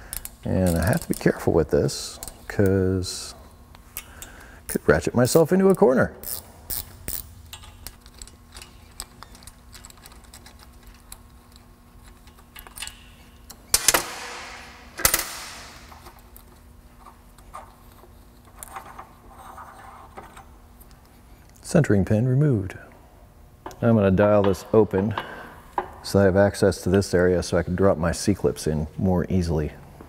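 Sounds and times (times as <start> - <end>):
hand ratchet clicking: 5.7 - 13.1.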